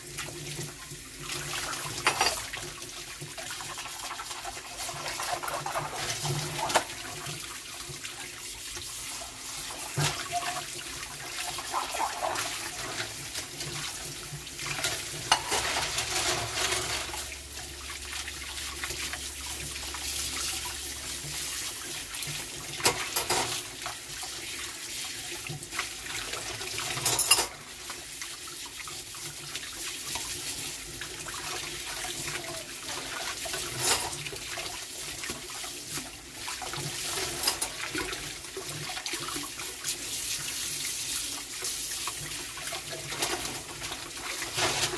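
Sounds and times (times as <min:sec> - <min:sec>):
tap water splashing into sink: 0:00.0 - 0:44.9
dishes and utensils clinking: 0:01.9 - 0:02.6, 0:14.7 - 0:17.4, 0:22.8 - 0:23.6, 0:26.8 - 0:27.6, 0:33.5 - 0:34.3, 0:37.2 - 0:38.1.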